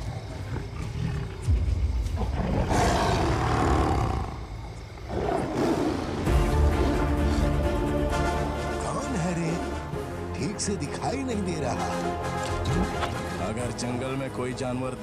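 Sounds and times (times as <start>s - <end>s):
trailer music: 1.4s - 5.0s, 5.9s - 15.0s
tiger roaring: 2.2s - 7.4s.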